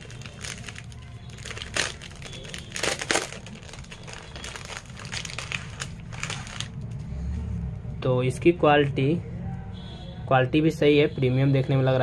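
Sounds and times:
plastic packaging crinkling: 0.0 - 7.0.

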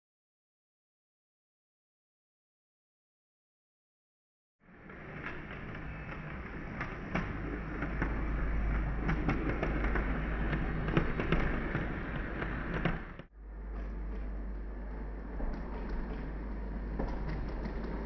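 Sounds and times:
wheels clicking on rails: 4.7 - 18.0.

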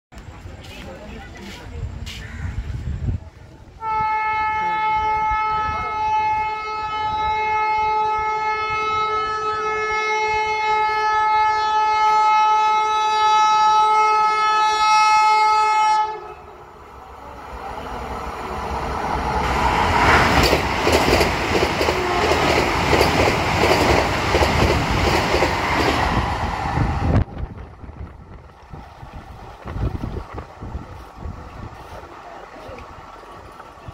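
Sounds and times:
train horn: 3.8 - 16.6, 21.9 - 22.6
train rushing past: 15.3 - 33.9
train wheel clatter: 19.7 - 26.4.

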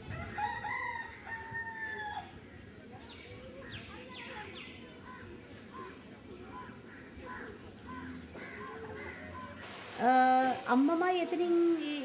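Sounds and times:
rooster crowing: 0.0 - 2.2.

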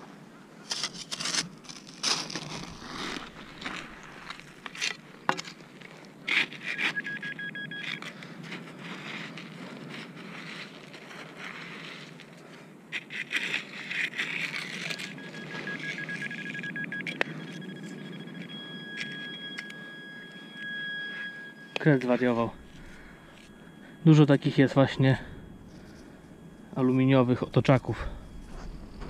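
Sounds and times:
metal detector high tone: 2.3 - 10.8, 14.0 - 29.0
digging tool scraping wet sand: 12.9 - 16.1.

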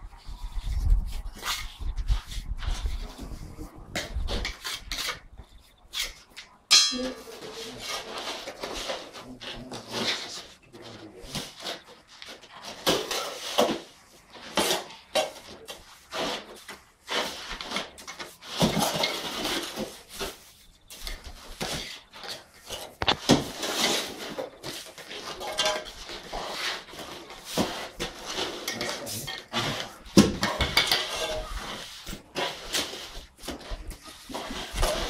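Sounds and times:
trowels scraping and clinking: 22.2 - 33.2.

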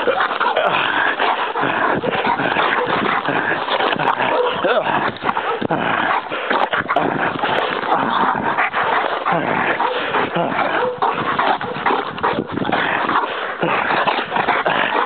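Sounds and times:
dog barking: 2.0 - 3.3, 4.0 - 5.6, 9.3 - 12.5
dog whining: 9.2 - 12.0.

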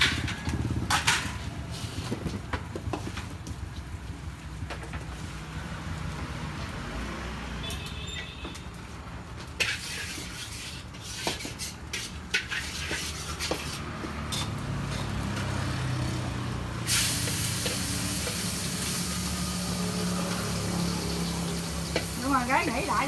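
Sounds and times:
utensil clicking and scraping pans: 0.0 - 3.2, 9.4 - 15.7, 20.3 - 23.0
pancakes frying in pans: 0.0 - 6.8, 8.5 - 23.0
loud sizzle: 9.5 - 23.0.

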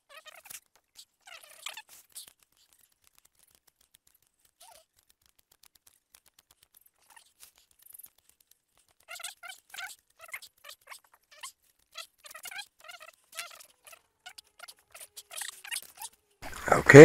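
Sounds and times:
short squeaky sounds: 0.1 - 2.8, 7.0 - 17.0.

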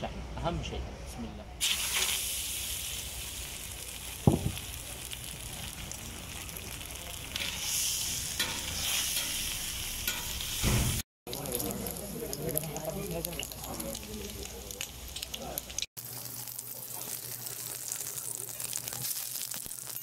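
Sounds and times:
fat sizzling on a griddle: 1.6 - 20.0
sharp knock: 4.3 - 4.6
metal spatulas scraping griddle: 8.4 - 10.9.

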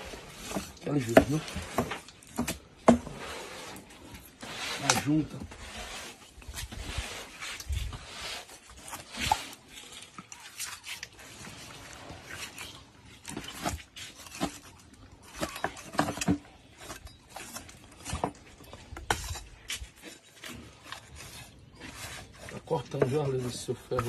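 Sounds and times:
sharp crackles and knocks: 8.6 - 23.2.

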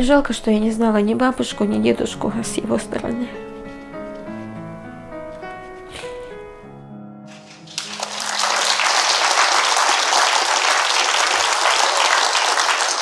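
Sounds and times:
soft background music: 0.0 - 8.8
audience applause: 7.3 - 13.0.

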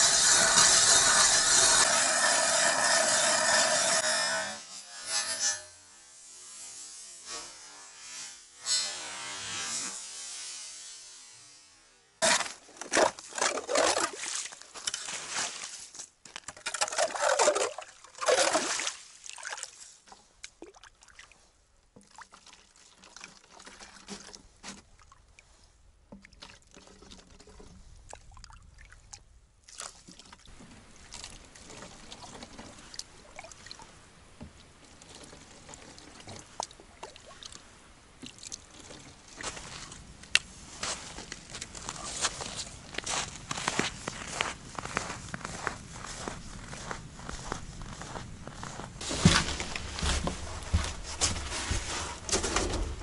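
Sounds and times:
ice auger grinding ice: 0.0 - 4.5, 12.2 - 14.1, 16.5 - 18.7
water poured into plastic jugs: 12.8 - 14.7, 16.6 - 19.8.

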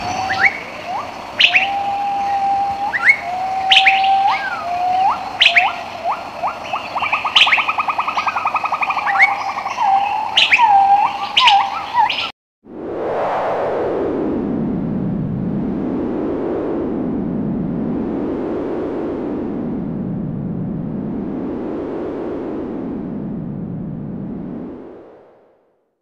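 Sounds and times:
birds singing: 0.0 - 12.3.

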